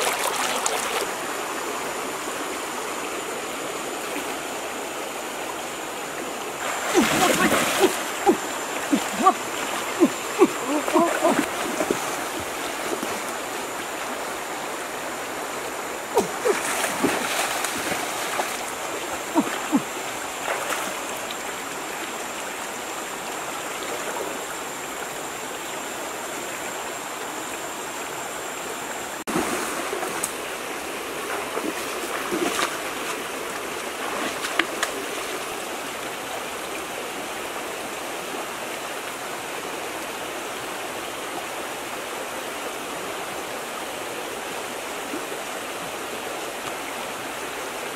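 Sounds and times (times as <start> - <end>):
river rushing over rocks: 0.0 - 26.1
sharp splashes and knocks: 16.2 - 18.7, 31.4 - 32.8.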